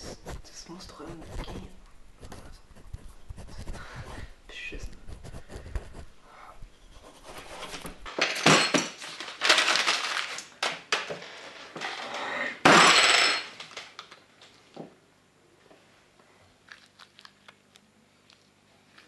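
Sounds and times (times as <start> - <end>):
paper being crumpled: 9.0 - 10.7.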